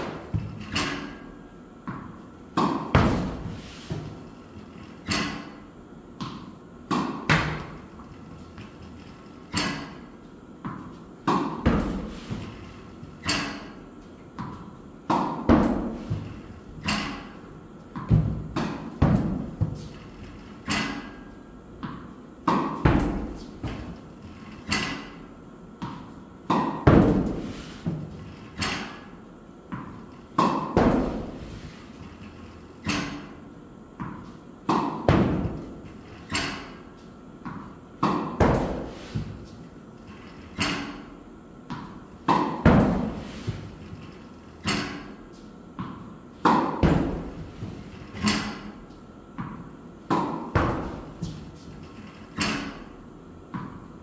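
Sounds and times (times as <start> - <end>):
tennis racket striking ball: 0.0 - 4.2, 5.0 - 5.6, 6.2 - 7.8, 9.5 - 12.6, 13.2 - 13.8, 14.4 - 20.0, 20.6 - 24.0, 24.6 - 29.1, 29.7 - 31.7, 32.8 - 33.4, 34.0 - 39.6, 40.5 - 41.1, 41.7 - 43.8, 44.6 - 48.8, 49.4 - 51.7, 52.4 - 52.9
tennis ball bouncing: 1.8 - 4.2, 6.2 - 7.8, 10.6 - 12.5, 14.4 - 19.9, 21.8 - 24.0, 25.8 - 28.1, 29.7 - 31.6, 34.0 - 36.8, 37.4 - 39.5, 41.7 - 43.6, 44.6 - 48.6, 49.4 - 51.4, 53.5 - 53.9.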